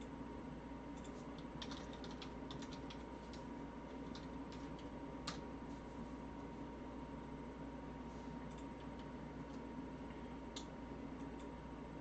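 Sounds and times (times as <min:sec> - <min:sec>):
steady low hum: 0:00.0 - 0:12.0
computer keyboard typing: 0:01.0 - 0:05.4.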